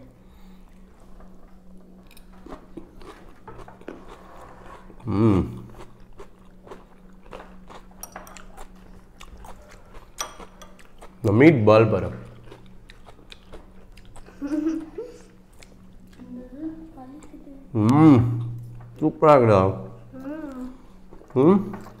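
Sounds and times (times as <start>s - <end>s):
faint low hum: 0.0s - 22.0s
chewing and crunching salad: 0.7s - 14.5s, 15.2s - 16.3s
forks clicking on ceramic bowls: 10.2s - 11.1s.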